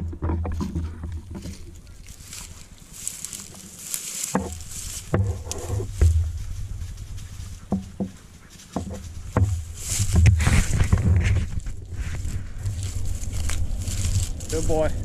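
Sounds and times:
footsteps crunching dry grass: 0.0s - 15.0s
low buffeting microphone rumble: 4.4s - 7.7s, 9.0s - 15.0s
brush swishing against clothing: 7.2s - 12.3s.

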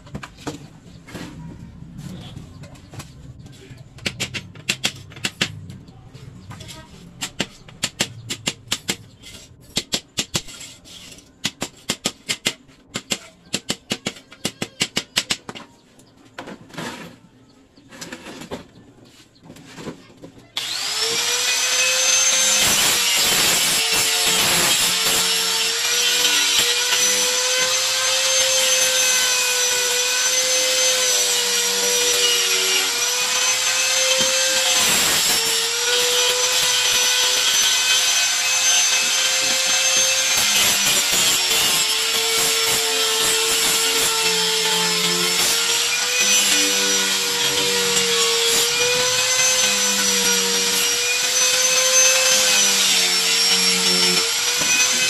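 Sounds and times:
angle grinder sanding wood: 20.6s - 55.0s.

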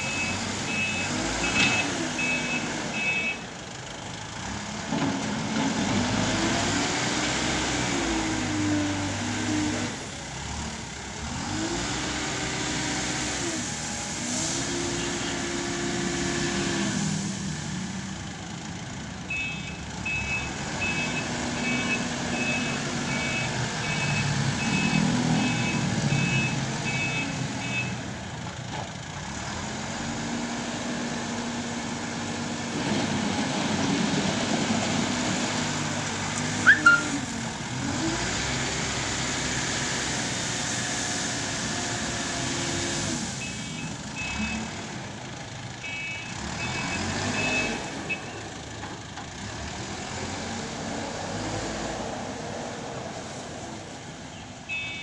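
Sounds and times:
reversing alarm beeps: 0.0s - 3.4s, 19.3s - 27.9s, 36.6s - 37.2s, 54.7s - 55.0s.

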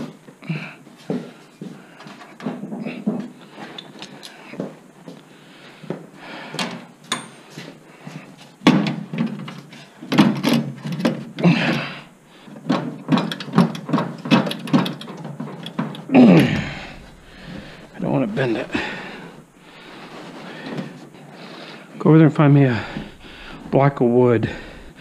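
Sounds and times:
hand tools clanking on metal: 7.1s - 7.6s, 12.7s - 17.0s.

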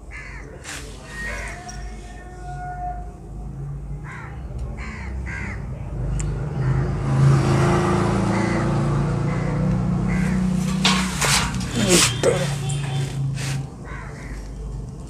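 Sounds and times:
crow cawing: 0.1s - 0.6s, 4.0s - 5.7s, 8.3s - 11.0s, 13.8s - 14.6s.

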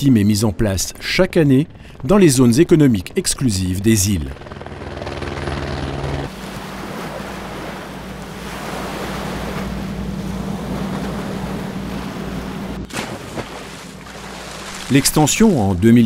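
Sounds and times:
boat engine hum: 0.0s - 16.0s
wind: 0.0s - 16.0s
mechanical drone: 4.3s - 6.4s
sea water: 4.4s - 16.0s.

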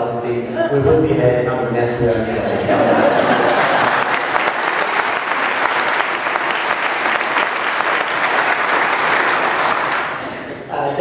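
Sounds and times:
crowd applauding: 3.0s - 10.7s.

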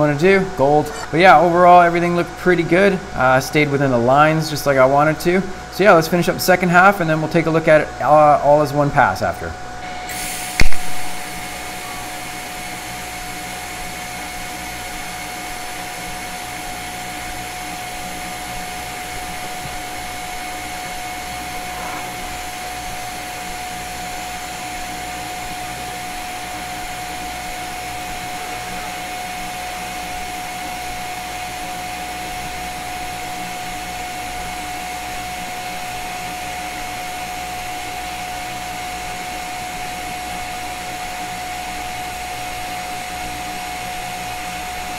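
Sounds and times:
welding arc hiss and whine: 0.0s - 44.9s
welding arc striking crack: 10.5s - 11.4s.

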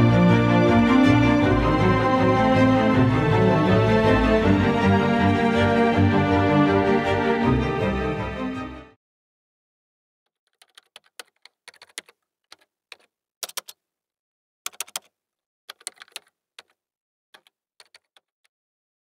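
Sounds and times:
keyboard typing clicks: 10.5s - 13.8s, 14.7s - 15.1s, 15.7s - 16.8s.

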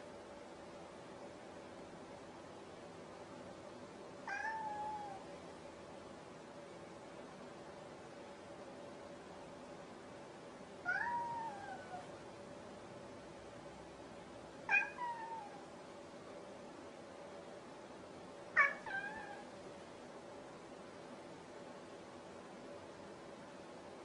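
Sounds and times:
cat meowing: 4.2s - 5.2s, 10.8s - 12.1s, 14.7s - 15.7s, 18.6s - 19.5s.

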